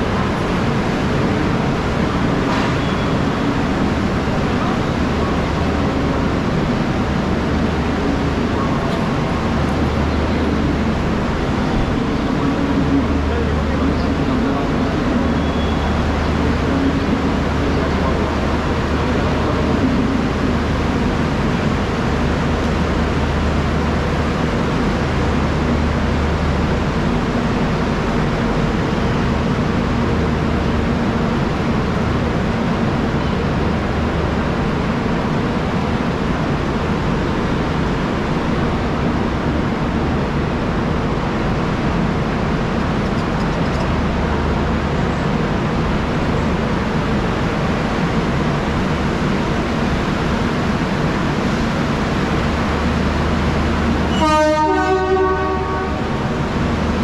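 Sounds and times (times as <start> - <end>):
mechanical hum of standing train: 0.0 - 57.0
train horn: 54.1 - 56.3.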